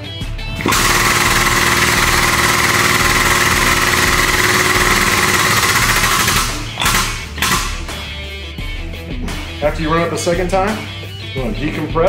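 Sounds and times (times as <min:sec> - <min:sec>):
hydraulic pump hissing and humming: 0:00.6 - 0:08.1.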